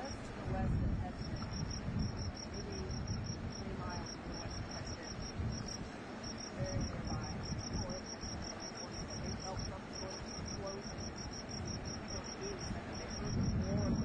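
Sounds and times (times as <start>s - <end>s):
crickets chirping: 0.0s - 14.0s
low uneven rumble: 0.0s - 14.0s.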